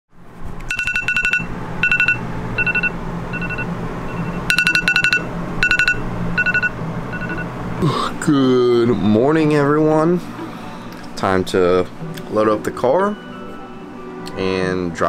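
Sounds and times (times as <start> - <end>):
low steady hum: 0.2 - 15.0
two-tone electronic alarm beeps: 0.7 - 7.5.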